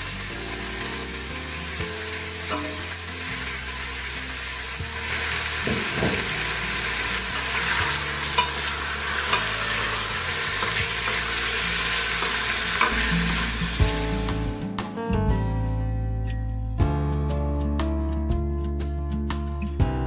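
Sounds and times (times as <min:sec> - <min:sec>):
meat and vegetables sizzling: 0:00.0 - 0:14.8.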